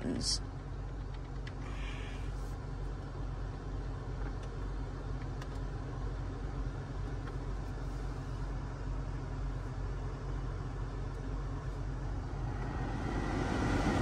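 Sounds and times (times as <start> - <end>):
car cabin idling hum: 0.0 - 14.0.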